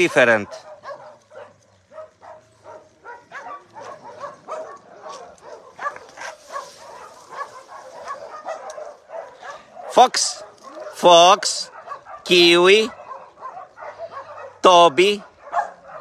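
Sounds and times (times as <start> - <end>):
dogs barking and yipping: 0.0 - 16.0.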